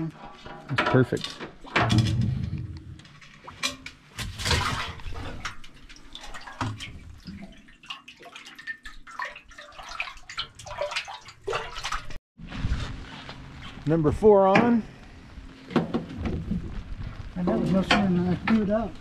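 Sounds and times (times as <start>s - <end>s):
water sloshing and dripping: 0.3s - 12.2s
fish splashing into water: 4.2s - 12.2s.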